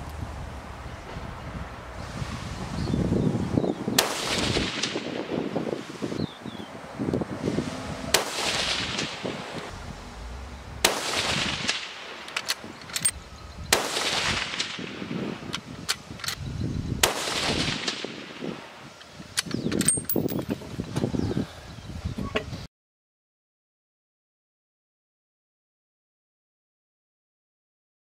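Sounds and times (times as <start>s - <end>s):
rifle shots with echo: 10.8s - 12.4s, 13.8s - 15.1s, 17.0s - 18.4s.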